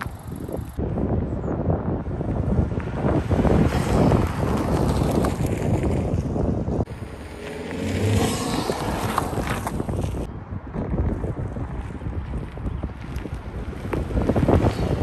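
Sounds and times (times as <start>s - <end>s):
wind noise on microphone: 0.0s - 15.0s
car engine driving past: 6.9s - 9.7s.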